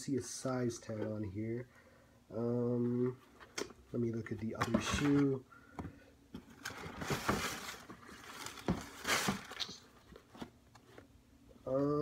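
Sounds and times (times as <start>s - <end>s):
sneaker handling rustle: 6.6s - 11.1s.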